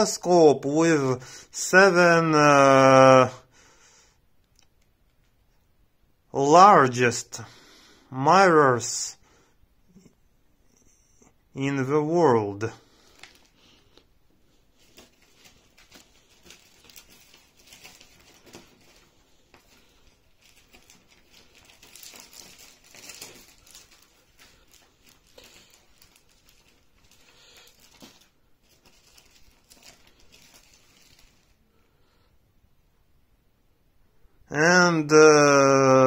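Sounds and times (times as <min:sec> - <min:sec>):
rustling and crinkling: 0:12.6 - 0:32.2.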